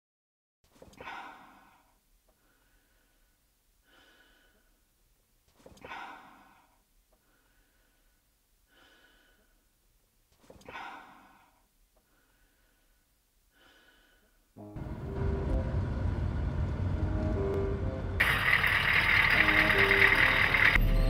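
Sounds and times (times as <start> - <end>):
person breathing heavily: 0.8 - 5.0, 5.6 - 9.8, 10.4 - 14.6.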